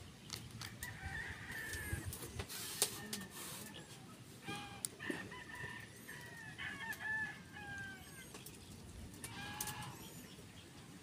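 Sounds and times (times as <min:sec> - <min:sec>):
rooster crowing: 0:00.8 - 0:02.1, 0:02.9 - 0:08.3.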